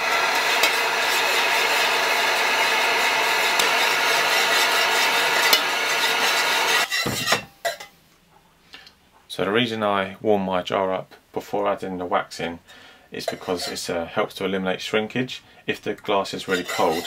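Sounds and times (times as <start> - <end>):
heat gun blowing: 0.0 - 7.2.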